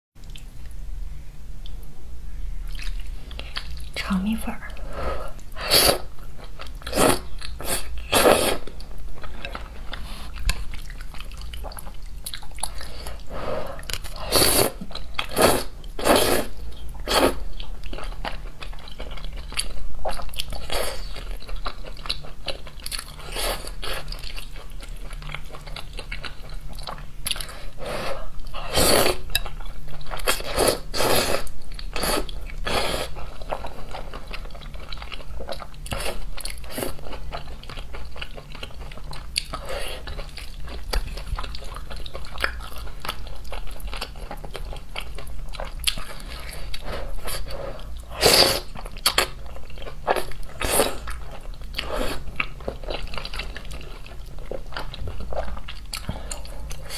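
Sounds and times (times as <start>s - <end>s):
person slurping noodles: 5.6s - 6.1s, 6.9s - 8.7s, 13.4s - 17.4s, 27.9s - 29.2s.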